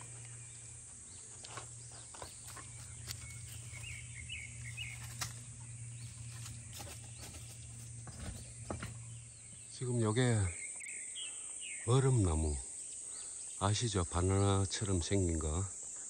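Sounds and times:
steady low hum: 0.0s - 11.8s
bird chirps: 0.0s - 14.4s.

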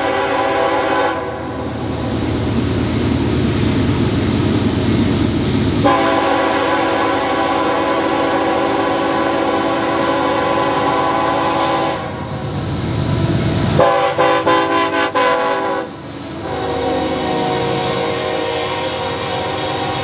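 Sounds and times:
locomotive air horn blasts: 0.0s - 1.6s, 5.8s - 12.2s, 13.8s - 20.0s.

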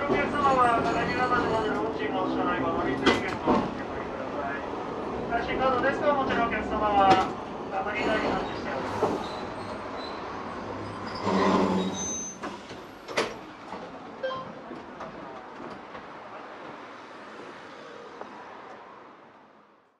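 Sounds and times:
tram rumbling: 0.0s - 19.7s
short loud pitched tone: 14.2s - 14.5s.

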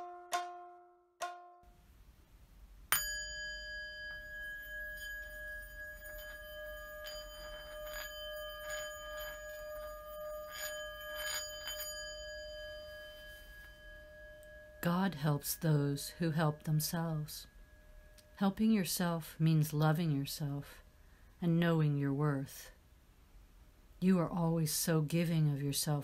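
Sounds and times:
plucked note: 0.0s - 1.7s
bell-like instrument ringing: 2.9s - 18.9s.

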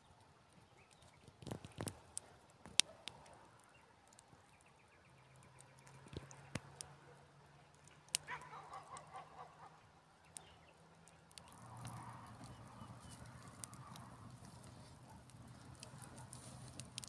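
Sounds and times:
soft rustling: 11.5s - 17.0s.

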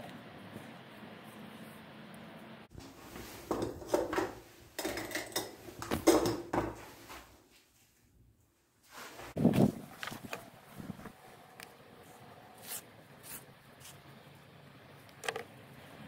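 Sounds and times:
metal canister clinking and rattling: 3.5s - 6.7s.

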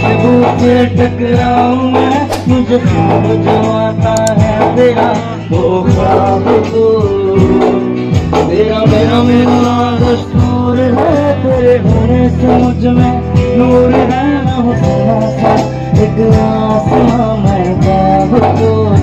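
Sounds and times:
acoustic guitar: 0.0s - 19.0s
man singing: 0.0s - 19.0s
dhol drum strokes: 1.4s - 14.2s.

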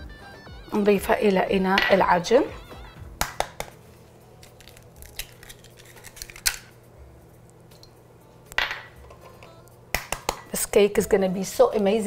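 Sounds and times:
eggs cracked on bowl rim: 4.4s - 6.7s, 9.9s - 10.5s.

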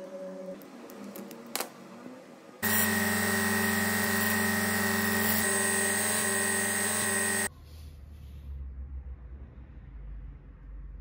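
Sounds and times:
belt sander running: 2.6s - 7.5s.

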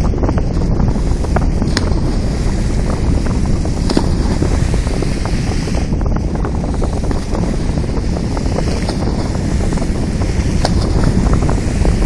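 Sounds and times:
seawater breaking around ship bow: 0.0s - 12.0s
wind buffeting microphone: 0.0s - 12.0s.

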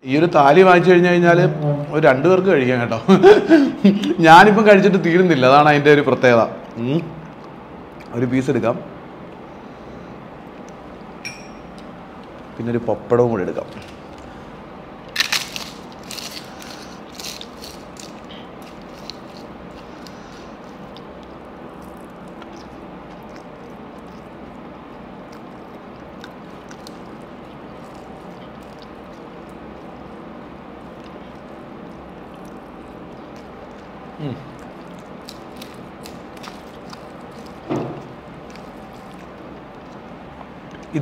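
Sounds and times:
low background hum: 0.0s - 41.0s
pappadam crackling as crushed: 15.1s - 39.8s.

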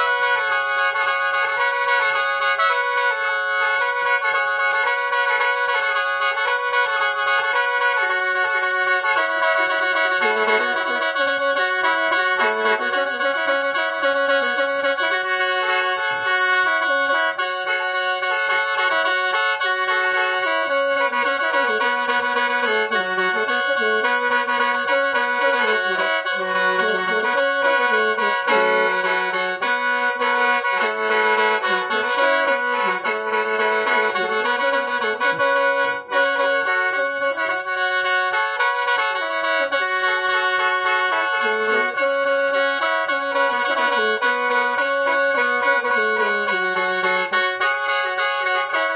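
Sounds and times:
mouth organ melody with drone: 19.8s - 37.8s.

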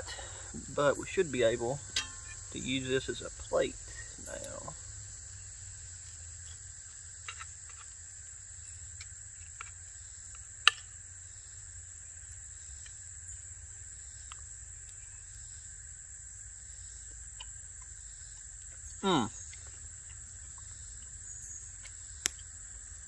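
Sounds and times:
high-pitched insect drone: 0.0s - 8.9s, 9.8s - 23.0s
cutlery clicking on iron skillet: 1.9s - 2.4s
sharp clink: 1.9s - 2.7s.

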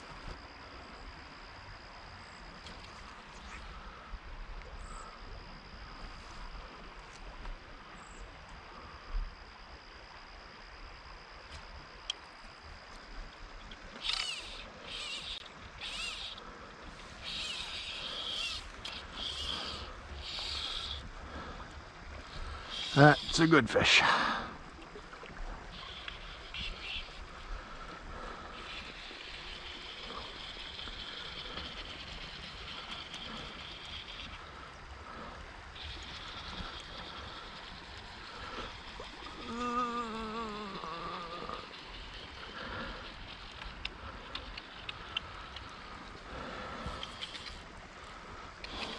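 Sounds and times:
flowing river water: 0.0s - 48.9s
animal calling: 14.0s - 16.4s, 17.2s - 21.1s, 22.6s - 24.4s, 35.8s - 43.4s
wavering voice-like moan: 39.4s - 41.7s.

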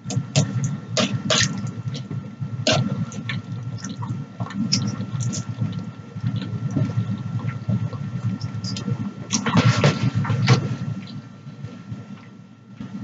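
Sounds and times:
wet chewing of noodles: 2.7s - 9.7s.

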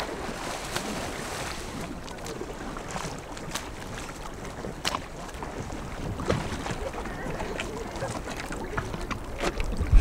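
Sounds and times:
choppy sea water sloshing: 0.0s - 10.0s
water slaps: 0.0s - 10.0s
wind buffeting microphone: 2.6s - 10.0s.

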